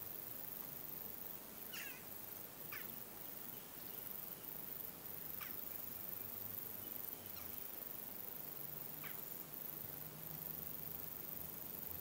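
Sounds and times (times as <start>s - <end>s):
jackdaws calling: 1.7s - 2.1s, 2.7s - 3.0s, 5.3s - 5.8s.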